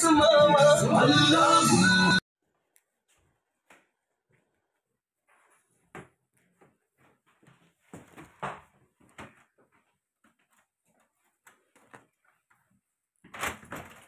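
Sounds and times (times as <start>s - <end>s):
footsteps in a hallway: 2.5s - 13.4s.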